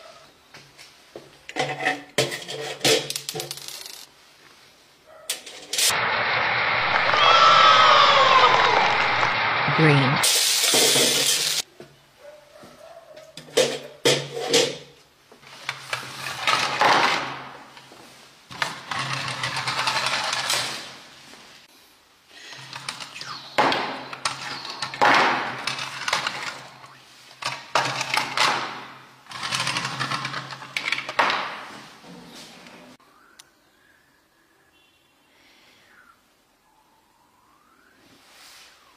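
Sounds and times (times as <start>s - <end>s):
plastic toys clicking and scraping: 1.5s - 4.1s, 15.6s - 17.2s, 18.5s - 21.0s, 22.4s - 28.6s, 29.2s - 31.2s.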